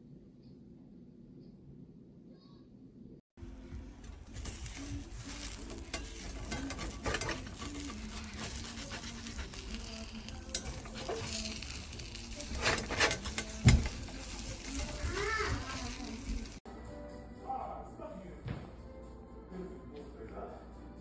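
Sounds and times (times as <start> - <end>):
eggs sizzling in a frying pan: 3.4 - 16.6
spatula scraping a pan: 3.8 - 16.6.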